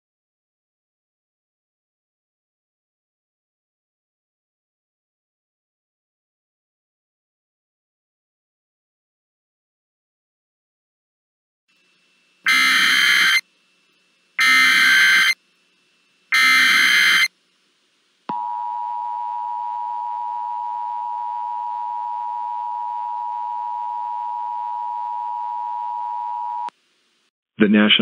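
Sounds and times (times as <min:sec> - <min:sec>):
harsh data bursts: 0:12.4 - 0:13.4, 0:14.4 - 0:15.4, 0:16.3 - 0:17.3
two-tone attention signal: 0:12.5 - 0:13.4, 0:14.4 - 0:15.4, 0:16.3 - 0:17.3, 0:18.3 - 0:26.7.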